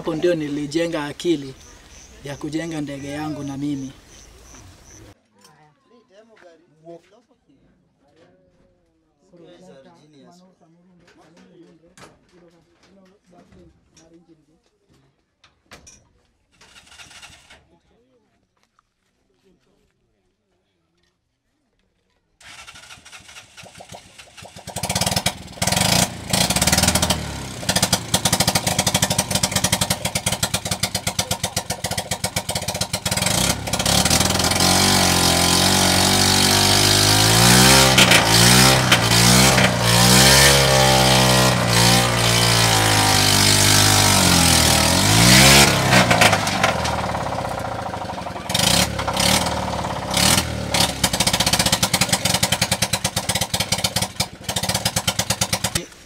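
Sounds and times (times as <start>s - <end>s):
helicopter engine revving: 0.0s - 5.2s, 22.4s - 55.9s.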